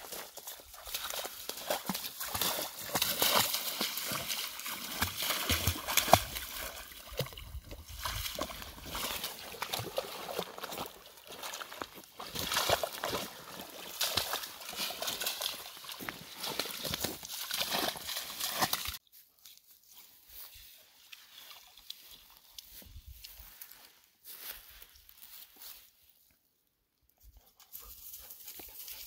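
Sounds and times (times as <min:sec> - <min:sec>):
dog wading through slushy ice: 0:00.0 - 0:19.0
splashing in water: 0:00.0 - 0:19.0.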